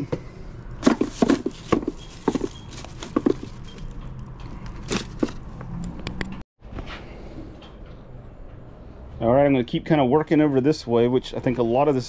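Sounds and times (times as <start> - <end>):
paper rustling: 0.8 - 3.9, 4.8 - 5.4
objects knocking and clicking: 0.8 - 6.4.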